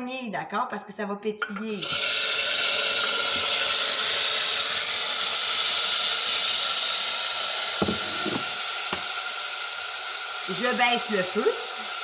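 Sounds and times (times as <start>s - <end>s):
tomatoes sizzling in hot oil: 1.8s - 12.0s
short knocks: 7.8s - 9.1s.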